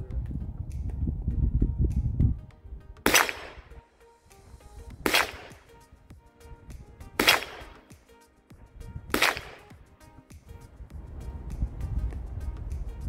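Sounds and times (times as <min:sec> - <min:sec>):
gunshots with echo: 0:03.1 - 0:03.8, 0:05.0 - 0:05.7, 0:07.2 - 0:07.8, 0:09.1 - 0:09.8.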